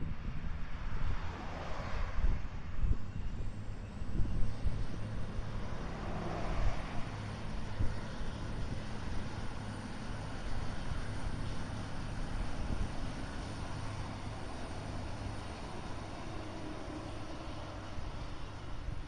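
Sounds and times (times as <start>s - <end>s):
diesel train passing: 0.8s - 19.0s.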